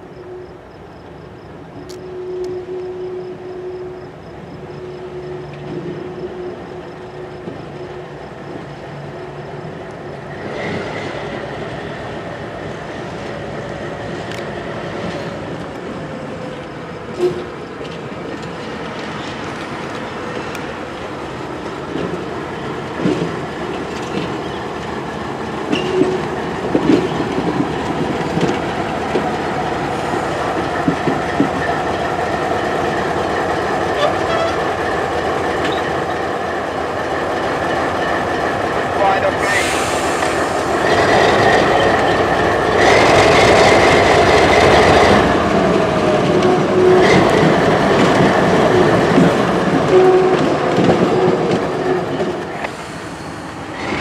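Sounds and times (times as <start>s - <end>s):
diesel locomotive engine: 0.0s - 54.0s
wheels clattering over rail joints: 14.2s - 39.0s.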